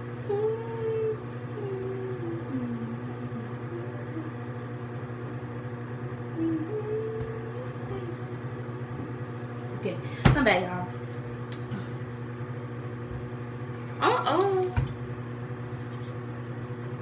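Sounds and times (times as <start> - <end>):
exhaust fan humming: 0.0 - 17.0
person humming: 0.2 - 4.6, 6.3 - 9.2.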